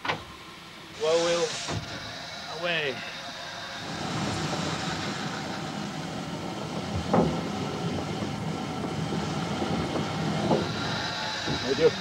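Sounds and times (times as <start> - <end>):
steam locomotive pulling away: 0.0 - 12.0
locomotive exhaust beat: 3.5 - 12.0.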